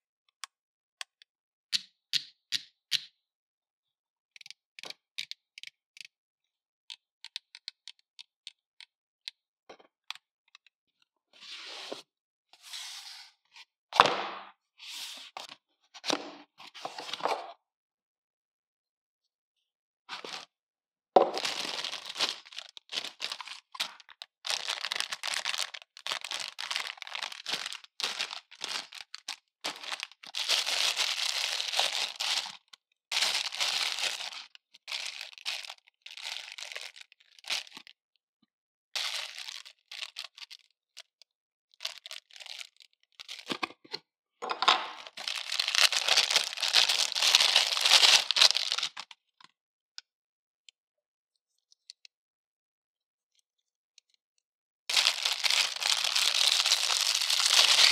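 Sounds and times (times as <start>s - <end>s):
plastic bags crinkling: 21.2s - 37.9s, 39.0s - 40.5s, 41.8s - 43.5s, 44.9s - 49.0s, 54.9s - 57.9s.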